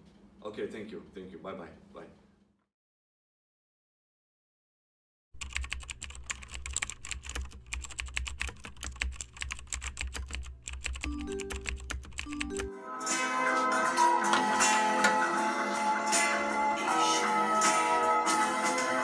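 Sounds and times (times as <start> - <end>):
keyboard typing clicks: 5.4 - 12.7
music notes: 11.1 - 19.0.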